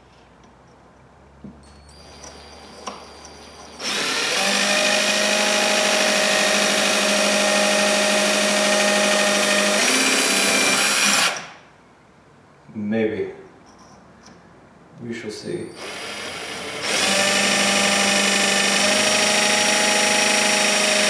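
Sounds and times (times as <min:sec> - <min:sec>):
cordless drill boring acrylic: 0:03.8 - 0:11.5, 0:15.8 - 0:21.0.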